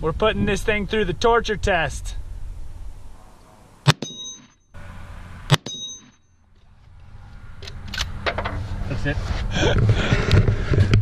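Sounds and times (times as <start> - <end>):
rifle shots: 3.8 - 4.2, 5.5 - 5.8
bullet ringing steel gong: 3.9 - 4.6, 5.5 - 6.3.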